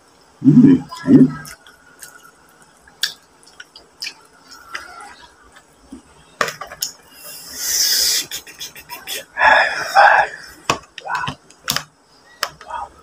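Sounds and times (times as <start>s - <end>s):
low voice: 0.4s - 1.6s
rising hiss: 7.1s - 10.6s.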